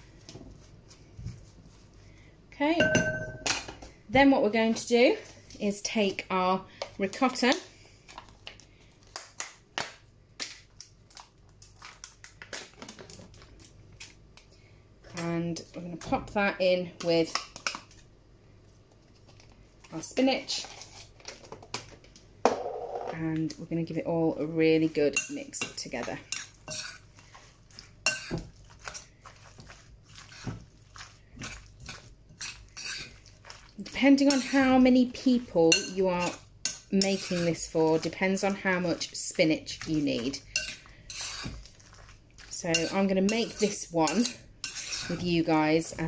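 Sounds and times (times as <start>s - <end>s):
fork mixing food in bowl: 24.8s - 46.0s.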